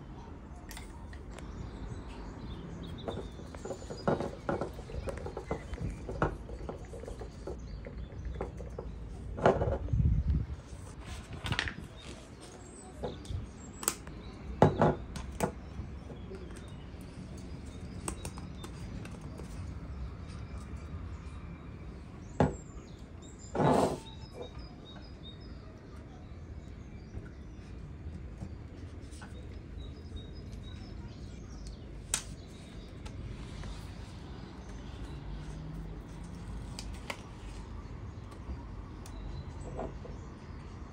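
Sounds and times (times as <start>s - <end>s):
clicks and knocks of objects: 0.6s - 20.9s.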